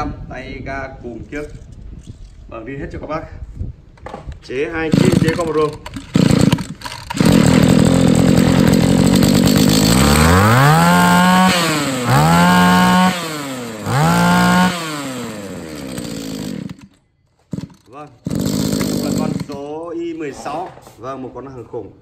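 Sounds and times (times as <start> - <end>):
brush cutter engine revving: 4.8 - 19.8.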